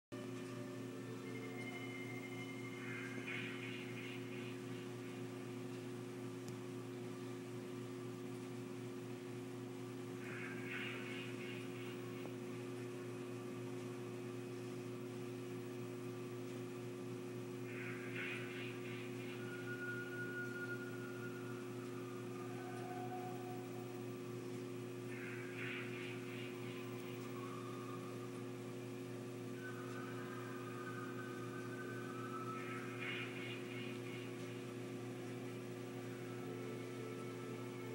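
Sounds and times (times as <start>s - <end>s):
low electrical hum: 0.2s - 37.9s.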